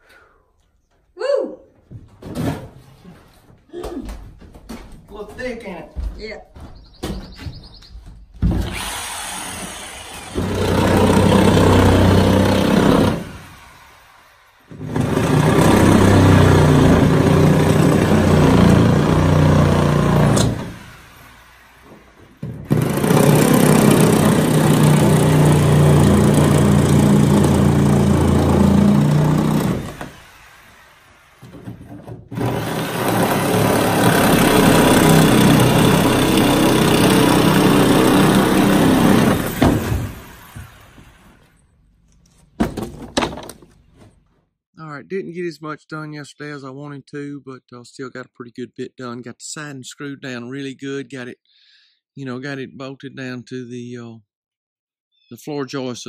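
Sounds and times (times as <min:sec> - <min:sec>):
small engine running: 0:32.4 - 0:40.8.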